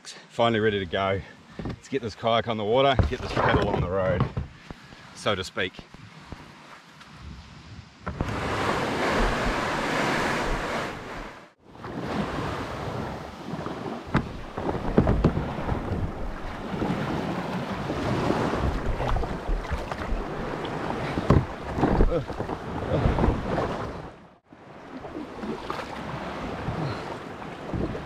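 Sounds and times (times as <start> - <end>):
sea waves washing: 8.2 - 28.0
wind buffeting microphone: 12.4 - 24.2
short splashes or knocks: 14.1 - 23.9.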